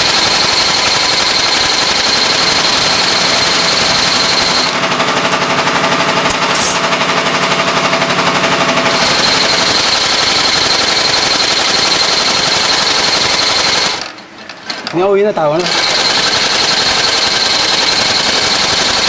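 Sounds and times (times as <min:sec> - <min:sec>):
sewing machine clattering: 0:00.0 - 0:05.5, 0:07.8 - 0:19.0.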